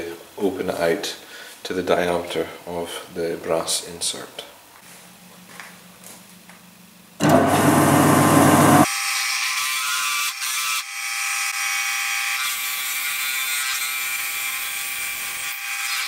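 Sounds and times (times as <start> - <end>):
lathe drilling into wood: 7.2 - 8.9.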